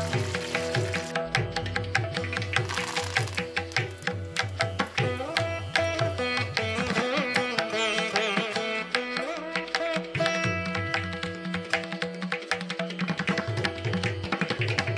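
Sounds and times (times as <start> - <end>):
hand-drum strokes: 0.0 - 8.4
plucked-string melody: 0.0 - 14.3.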